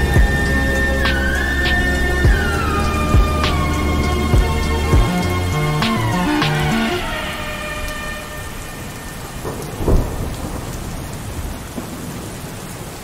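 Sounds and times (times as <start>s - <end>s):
falling tone: 0.0s - 10.2s
steady rain: 0.0s - 13.0s
thunder rumble: 0.0s - 13.0s.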